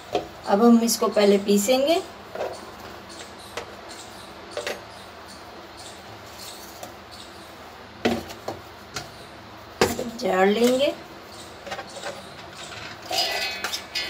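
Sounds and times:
kitchen utensils clinking: 0:11.7 - 0:14.0.

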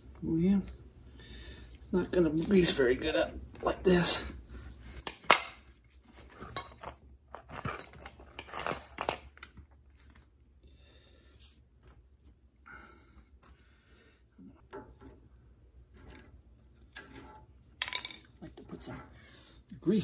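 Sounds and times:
clinks and rustling: 0:15.9 - 0:18.4.

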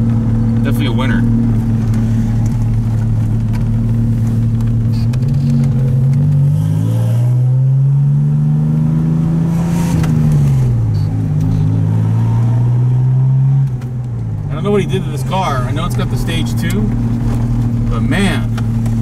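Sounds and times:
car engine from inside cabin: 0:00.0 - 0:19.0.

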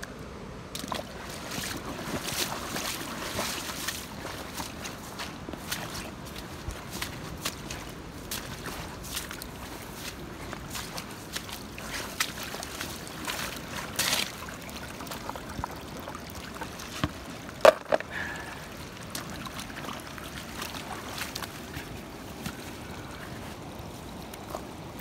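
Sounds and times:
stream running over gravel: 0:00.0 - 0:25.0
stones and gear knocking: 0:17.6 - 0:18.1.

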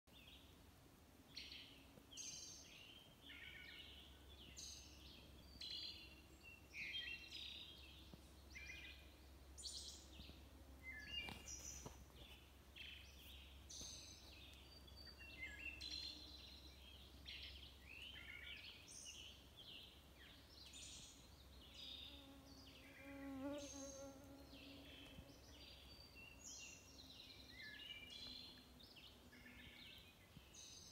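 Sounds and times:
other songbirds singing: 0:01.3 - 0:30.9
fly buzzing: 0:22.1 - 0:25.4.

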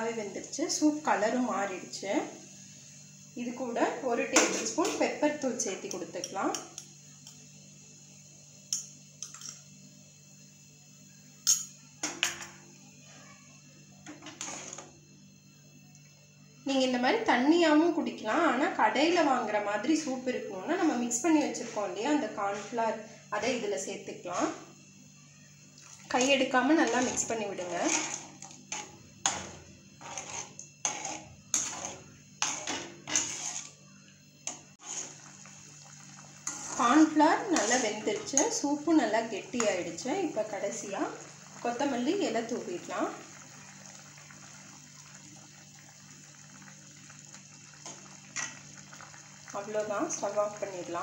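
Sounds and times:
faint steady hum: 0:00.0 - 0:51.0
metal spoon tapping metal pan: 0:11.4 - 0:12.5
metal spatula scraping a pan: 0:14.3 - 0:14.9, 0:26.2 - 0:33.8, 0:34.5 - 0:35.3, 0:36.4 - 0:38.6.

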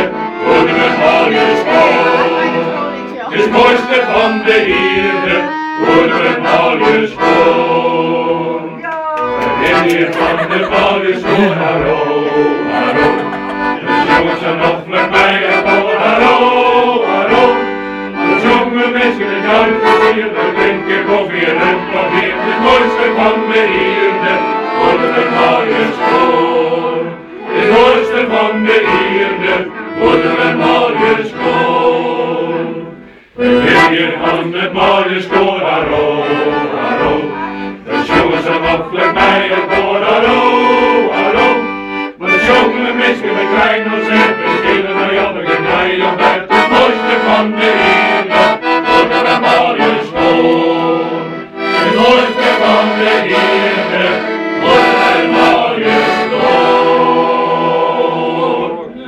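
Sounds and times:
men's choir singing: 0:00.0 - 0:59.0.

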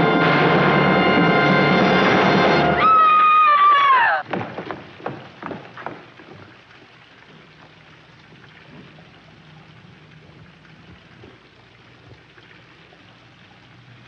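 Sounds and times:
low hum: 0:00.0 - 0:03.3.

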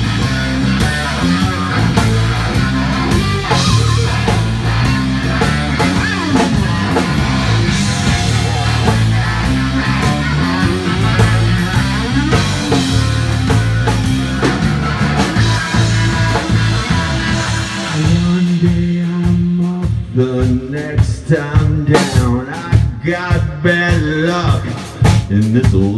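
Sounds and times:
electric guitar bending notes: 0:00.0 - 0:20.2
bass guitar: 0:00.0 - 0:25.9
drum kit: 0:00.0 - 0:25.9.

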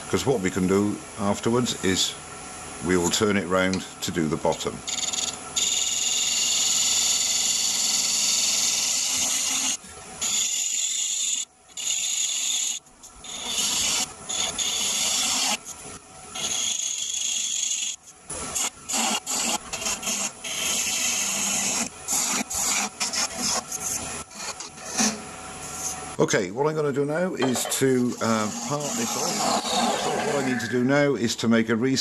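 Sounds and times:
gouge cutting wood on lathe: 0:05.0 - 0:15.6, 0:16.4 - 0:23.6, 0:27.9 - 0:30.6.

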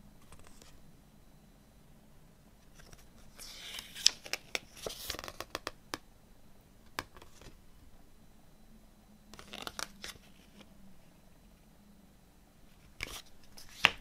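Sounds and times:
paper pages rustling: 0:02.8 - 0:05.6, 0:09.4 - 0:10.7, 0:12.9 - 0:14.0.

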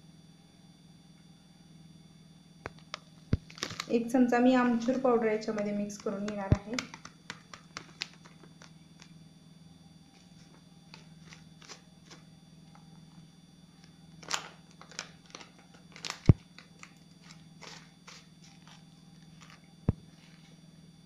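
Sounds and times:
plastic packet crinkling: 0:02.8 - 0:04.0, 0:04.7 - 0:09.1, 0:10.9 - 0:12.2, 0:14.2 - 0:20.5.

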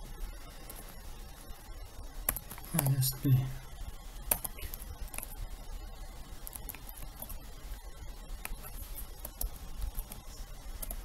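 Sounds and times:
computer keyboard keys clicking: 0:04.3 - 0:05.3.

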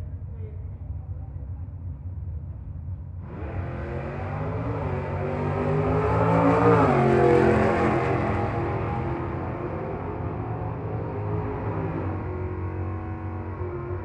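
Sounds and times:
low engine rumble: 0:00.0 - 0:05.2
drag racing car accelerating: 0:03.2 - 0:14.0.

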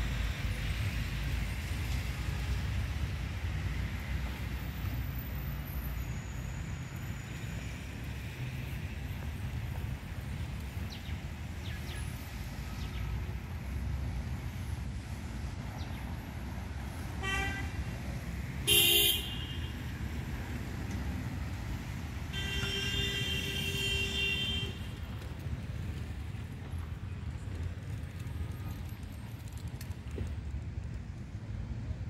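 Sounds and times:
city street traffic: 0:00.0 - 0:32.0
car horns honking: 0:18.7 - 0:19.8, 0:22.3 - 0:24.8.

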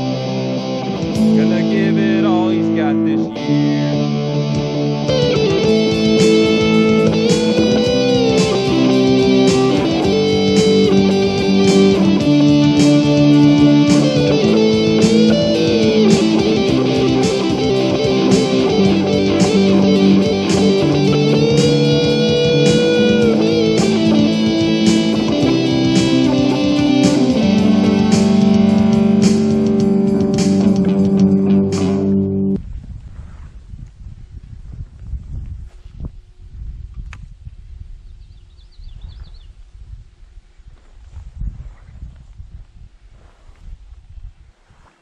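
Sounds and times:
electric guitar instrumental: 0:00.0 - 0:32.6
steady drum beat: 0:01.0 - 0:01.8, 0:04.6 - 0:32.2.

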